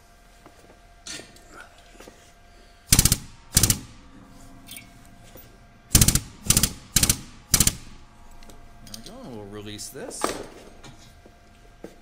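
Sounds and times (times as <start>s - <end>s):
hydraulic press clattering: 2.9s - 4.0s, 5.9s - 8.0s.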